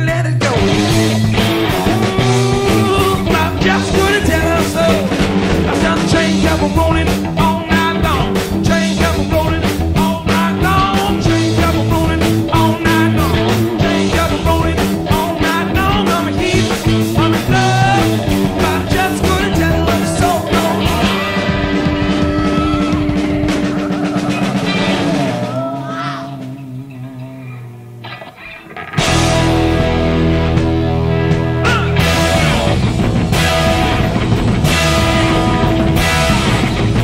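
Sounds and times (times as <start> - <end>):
drums with driving beat: 0.0 - 26.9, 28.6 - 37.0
bass guitar: 0.0 - 37.0
electric guitars: 0.0 - 37.0.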